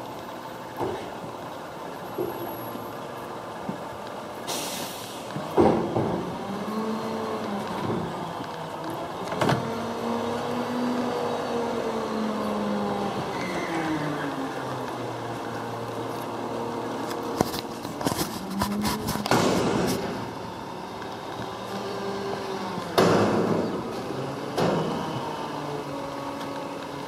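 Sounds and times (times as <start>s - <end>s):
engine humming: 0.0s - 27.0s
short hiss: 4.5s - 5.3s
sharp knocks: 19.2s - 20.2s.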